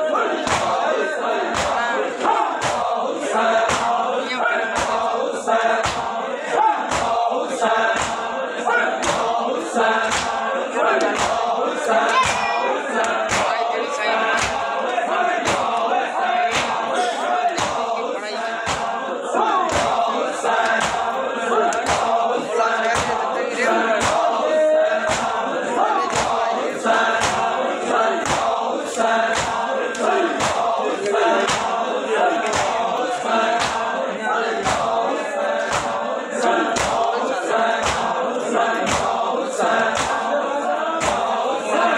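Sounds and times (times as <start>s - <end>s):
men chanting in unison: 0.0s - 41.9s
hands slapping chests: 0.4s - 4.0s, 4.7s - 5.1s, 5.7s - 6.2s, 6.8s - 7.3s, 7.9s - 8.3s, 8.9s - 13.5s, 14.3s - 18.0s, 18.6s - 19.0s, 19.6s - 23.3s, 23.9s - 27.6s, 28.2s - 36.0s, 36.6s - 40.4s, 41.0s - 41.5s.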